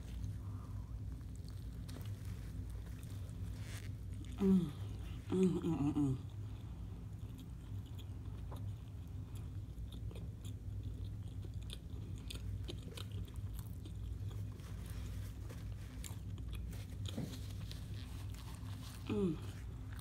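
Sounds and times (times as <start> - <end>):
chewing with crunches: 0.0 - 20.0.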